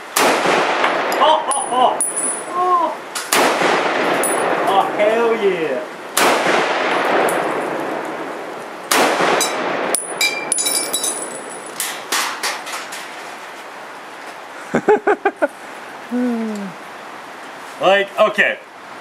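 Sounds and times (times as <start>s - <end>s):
rifle shot: 0.1s - 1.2s, 3.3s - 4.6s, 6.2s - 7.4s, 8.9s - 10.0s
gunshot echo: 0.2s - 1.2s, 3.3s - 4.6s, 6.2s - 7.4s, 8.9s - 10.0s
brass casings clinking: 1.1s - 2.5s, 4.1s - 4.6s, 9.4s - 11.8s
ringing metallic ping: 9.9s - 11.6s.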